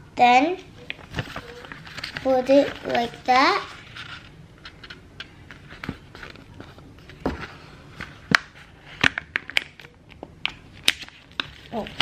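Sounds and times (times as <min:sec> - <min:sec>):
paper rustling: 0:00.9 - 0:09.0, 0:10.8 - 0:12.0.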